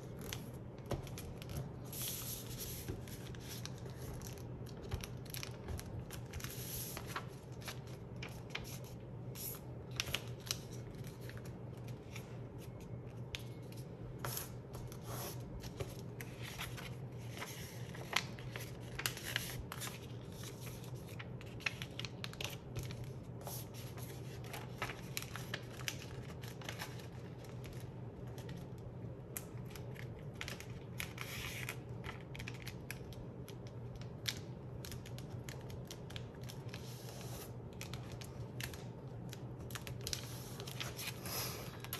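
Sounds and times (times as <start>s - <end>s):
paper rustling and creasing: 0.0s - 28.7s, 34.2s - 41.9s.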